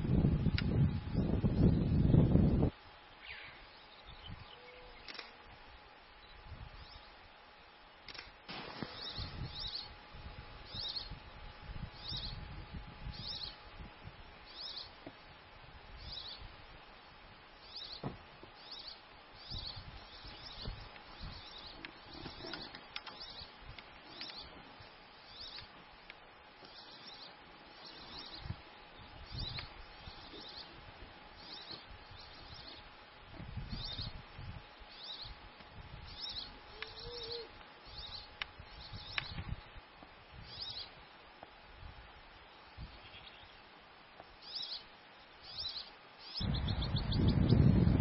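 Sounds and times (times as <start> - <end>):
wind rumble on microphone: 0.0 - 2.9, 6.4 - 6.9, 8.5 - 14.4, 19.4 - 22.7, 28.2 - 37.4, 38.6 - 40.7, 46.4 - 48.0
faint steady hum: 0.0 - 48.0
bird chirping: 17.6 - 23.5, 36.1 - 39.4, 44.4 - 47.7.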